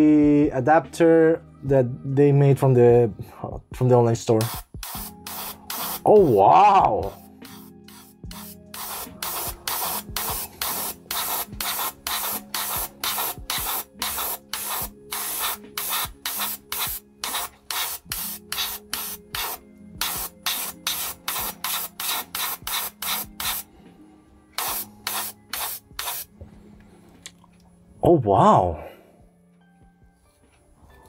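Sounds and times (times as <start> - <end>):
airbrush hissing bursts: 4.3 - 6.4, 7.0 - 23.8, 24.5 - 26.3.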